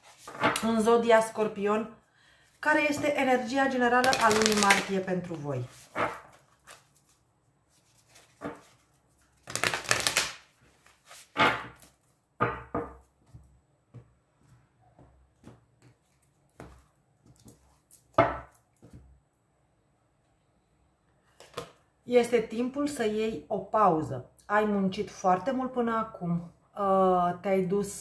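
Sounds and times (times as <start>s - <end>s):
cards being shuffled: 4.0s - 12.1s.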